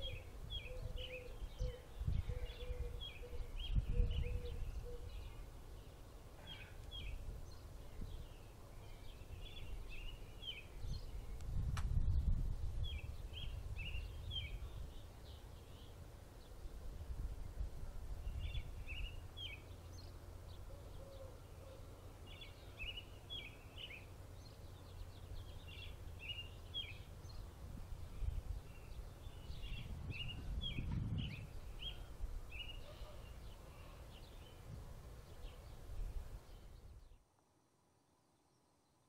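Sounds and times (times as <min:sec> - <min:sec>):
wind rumble on microphone: 0:00.0 - 0:05.4, 0:09.1 - 0:15.4, 0:16.5 - 0:20.0, 0:25.1 - 0:33.0, 0:34.4 - 0:37.2
small birds chirping: 0:00.0 - 0:37.4.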